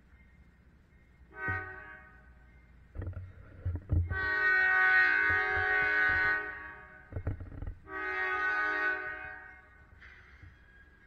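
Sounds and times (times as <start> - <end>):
locomotive air horn blasts: 1.3 - 2.4, 4.1 - 7.1, 7.8 - 9.9.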